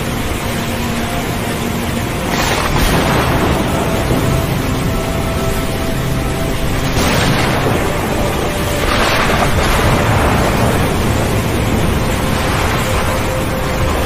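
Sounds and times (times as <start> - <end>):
rain: 0.0 - 14.0
wind: 0.0 - 14.0
thunder: 2.3 - 5.8, 6.6 - 14.0.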